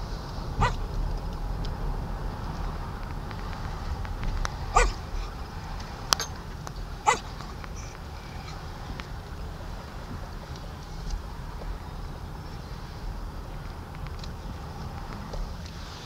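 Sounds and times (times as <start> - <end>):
slow car rumbling: 0.0 - 16.0
dog yipping barks: 0.6 - 0.8, 4.7 - 5.3, 7.0 - 7.9.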